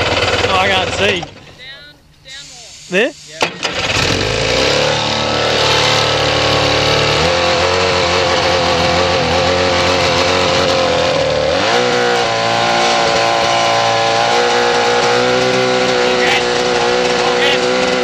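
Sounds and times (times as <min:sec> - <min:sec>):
boat engine running: 0:00.0 - 0:01.5, 0:03.6 - 0:18.0.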